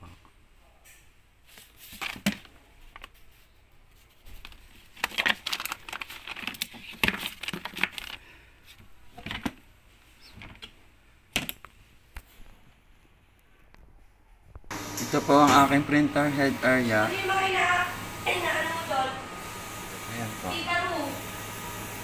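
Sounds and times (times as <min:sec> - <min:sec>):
plastic bags rustling: 0:04.1 - 0:09.6.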